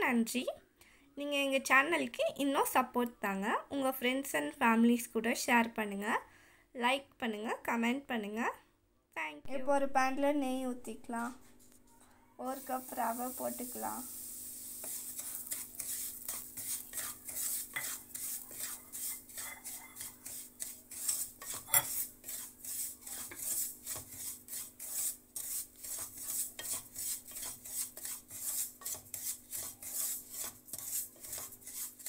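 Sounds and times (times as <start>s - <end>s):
wooden spatula scraping a pan: 11.3s - 32.0s.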